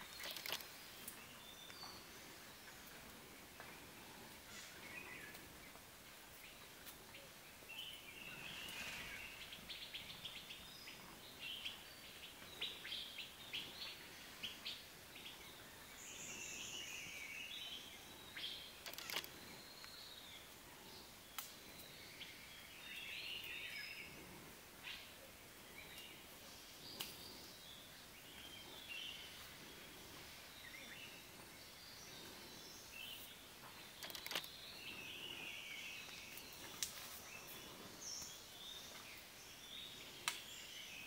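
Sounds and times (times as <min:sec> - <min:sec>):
small birds chirping: 0:00.0 - 0:41.0
sharp clicks: 0:00.1 - 0:00.7, 0:18.8 - 0:19.4, 0:34.0 - 0:34.5.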